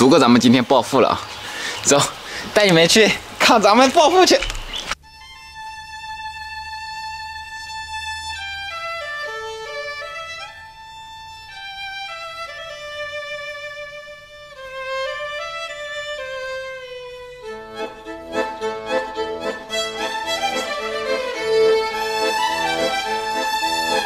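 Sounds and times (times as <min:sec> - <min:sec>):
slow bowed string melody: 0:05.0 - 0:24.0.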